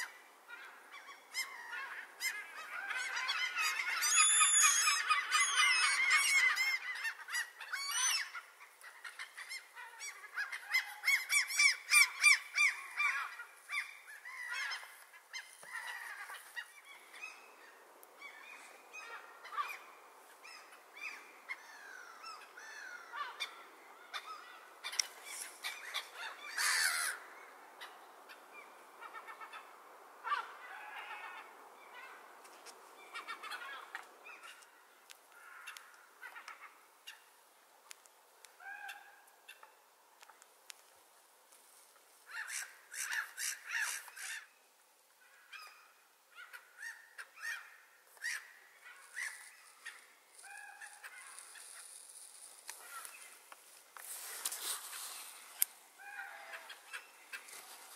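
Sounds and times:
gulls calling: 0.0 - 32.4.

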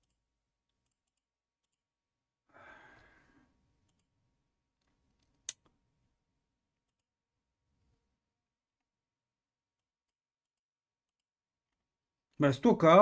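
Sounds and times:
person sighing: 2.5 - 3.5.

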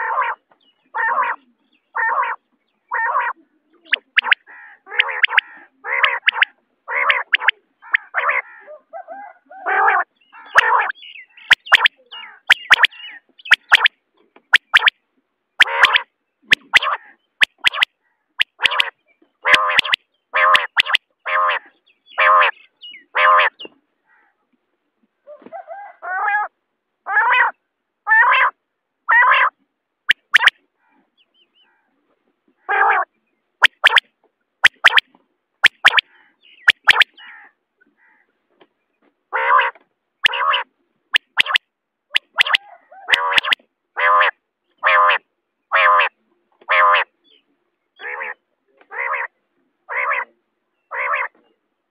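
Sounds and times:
quail call notes: 1.0 - 13.9, 14.5 - 14.9, 15.6 - 18.9, 19.5 - 22.6, 27.2 - 31.0, 32.6 - 35.0, 35.6 - 38.2, 39.4 - 45.2, 45.8 - 47.1
sharp clicks: 11.5 - 11.9, 12.5 - 12.9, 13.5 - 13.9, 14.6 - 14.9, 15.6 - 18.9, 19.5 - 20.0, 20.6 - 21.0, 30.1 - 30.5, 33.6 - 34.0, 34.6 - 35.0, 35.6 - 36.0, 36.7 - 37.1, 41.2 - 41.6, 42.2 - 43.6.

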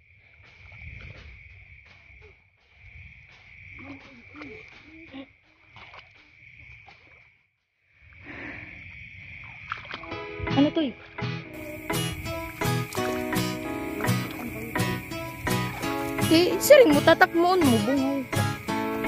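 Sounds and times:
footsteps through wet grass: 0.0 - 7.8, 11.6 - 19.0
crickets trilling: 0.0 - 19.0
rustling grass: 11.6 - 19.0.

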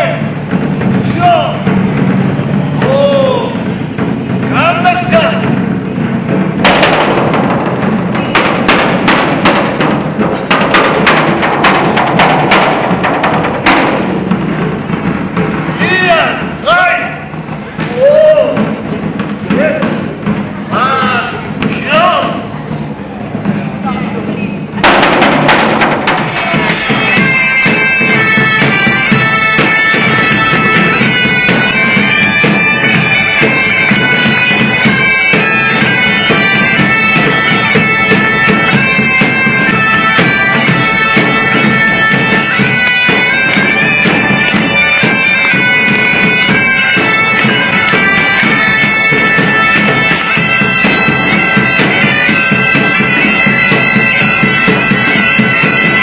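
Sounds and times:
bagpipe drone: 3.4 - 16.1, 24.8 - 56.0
bagpipes playing a tune: 25.0 - 56.0.

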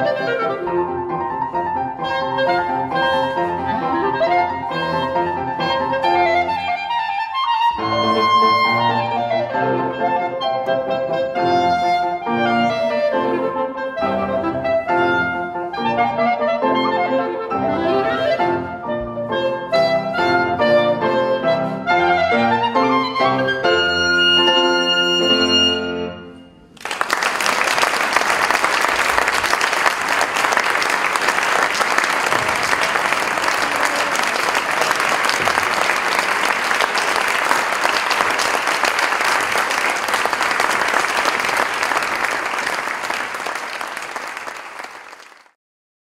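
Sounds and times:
piano: 0.0 - 45.1
clarinets playing: 2.0 - 12.2
audience applause: 26.8 - 45.6.

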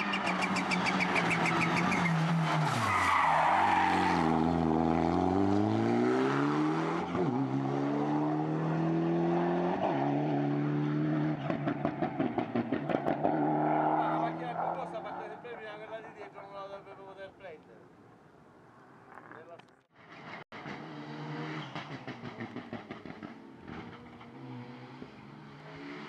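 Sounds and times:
rally car engine accelerating: 3.9 - 15.2, 20.1 - 26.0.

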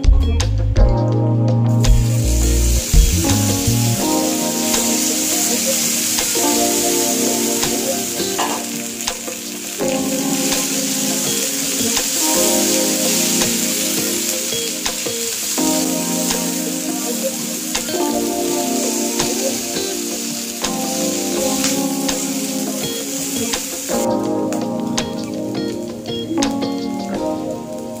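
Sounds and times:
vegetables sizzling in oil: 2.0 - 24.1.

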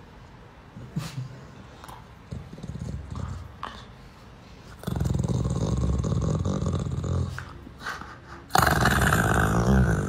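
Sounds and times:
dog growling: 2.3 - 3.9, 4.7 - 7.6, 8.4 - 10.0.

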